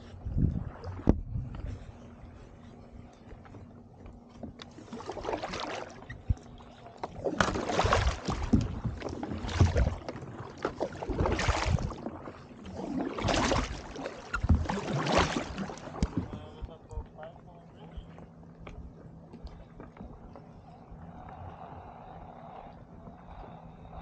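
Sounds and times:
kayak paddle splashing water: 0:04.6 - 0:16.7.

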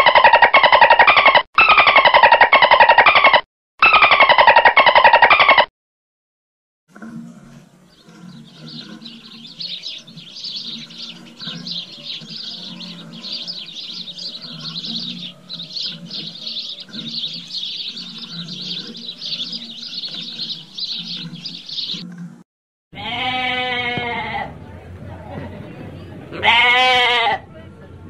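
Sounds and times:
flock of sparrows chirping: 0:07.5 - 0:22.1.

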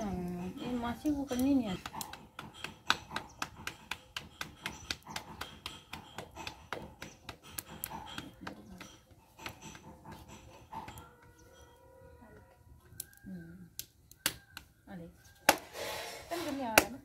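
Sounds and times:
hands patting dough: 0:01.3 - 0:10.3.

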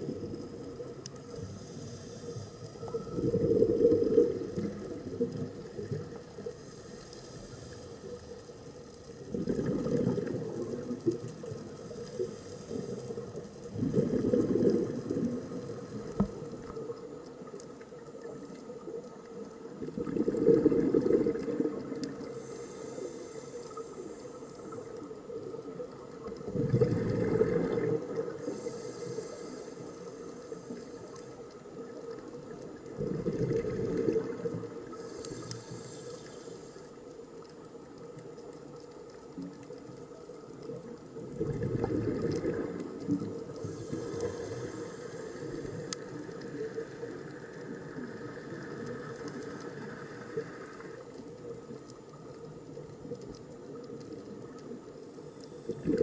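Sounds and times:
regulator hiss on inhale: 0:00.0 - 0:39.1, 0:43.3 - 0:53.8
bubbling on exhale: 0:01.8 - 0:06.2, 0:09.2 - 0:17.0, 0:19.8 - 0:22.9, 0:26.4 - 0:29.6, 0:32.8 - 0:35.9, 0:41.2 - 0:47.0, 0:55.6 - 0:56.0.

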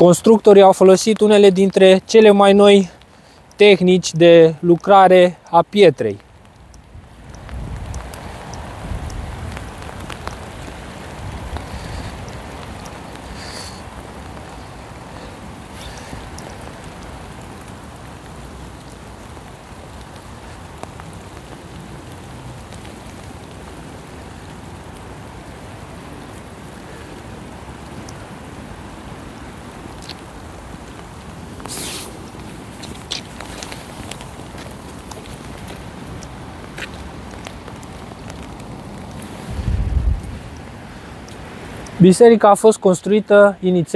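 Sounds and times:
rain drops clicking: 0:00.0 - 0:43.9
rain pattering on wet ground: 0:00.0 - 0:43.9
wind rumble on microphone: 0:06.7 - 0:13.0, 0:38.4 - 0:41.4.

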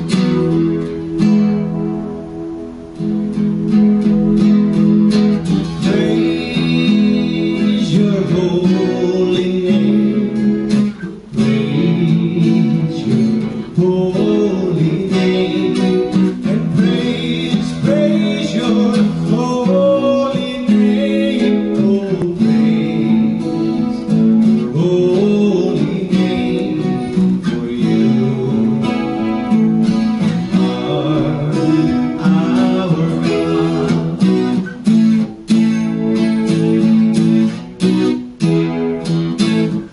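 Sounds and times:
acoustic guitar strumming: 0:00.0 - 0:39.9
man singing: 0:05.6 - 0:34.8.

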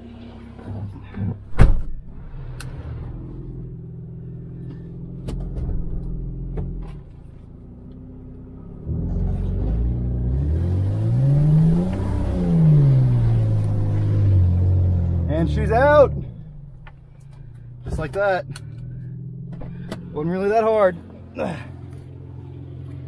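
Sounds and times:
click: 0:02.6 - 0:02.8
truck engine revving under load: 0:08.8 - 0:20.1
truck engine idling: 0:12.9 - 0:23.0.

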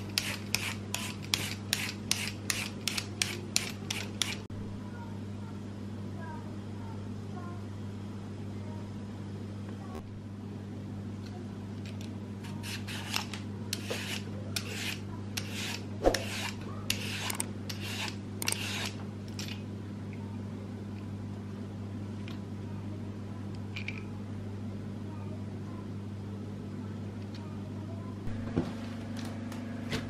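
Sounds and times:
peeler scraping sweet potato: 0:00.0 - 0:04.5, 0:12.4 - 0:19.0.

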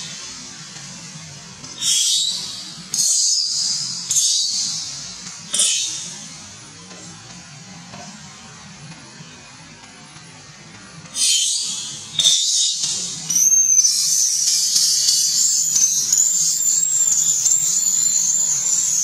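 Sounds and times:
faint background music: 0:00.0 - 0:19.0
infant monkey screaming: 0:01.8 - 0:04.8, 0:11.2 - 0:13.5.

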